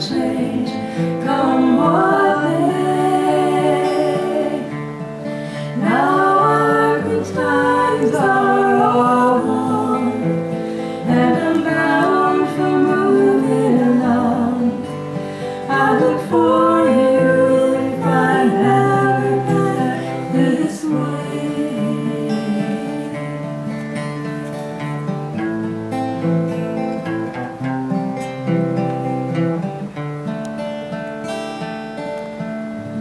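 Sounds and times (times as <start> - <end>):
woman singing: 0.0 - 23.4
acoustic guitars strumming: 0.0 - 33.0.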